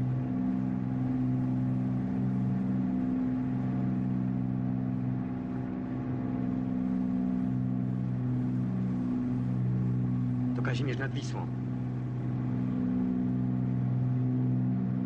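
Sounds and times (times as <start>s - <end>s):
light aircraft engine droning: 0.0s - 15.0s.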